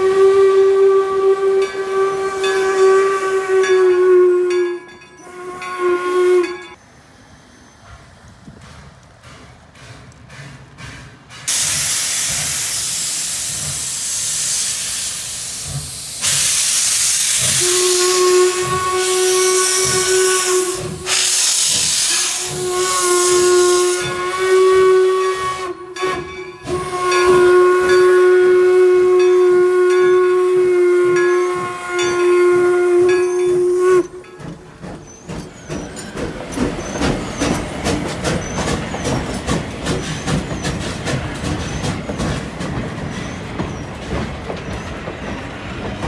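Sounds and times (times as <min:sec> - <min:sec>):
steam whistle blasts: 0:00.0 - 0:06.8, 0:16.2 - 0:34.2
steam locomotive hissing: 0:05.2 - 0:46.0.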